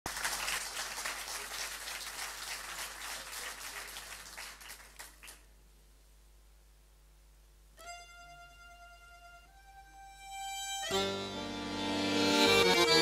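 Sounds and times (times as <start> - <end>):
audience applauding: 0.1 - 5.5.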